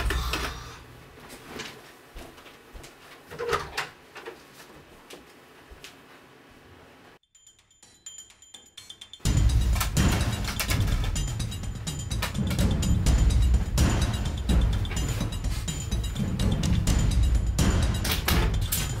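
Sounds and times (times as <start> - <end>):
knocks and rustles of movement: 0.0 - 6.7.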